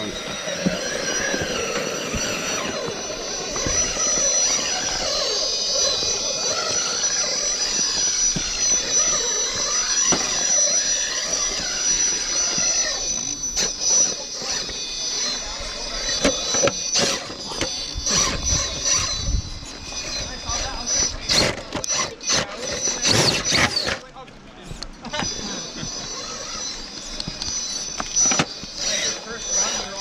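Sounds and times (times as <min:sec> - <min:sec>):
electric motor whining: 0:00.0 - 0:30.0.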